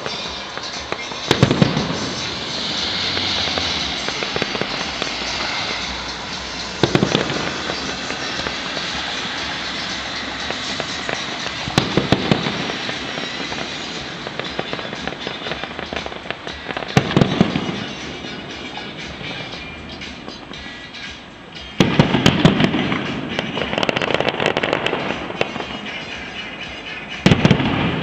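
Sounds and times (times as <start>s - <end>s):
fireworks crackling: 0.0s - 28.0s
heavy firework bangs: 0.0s - 28.0s.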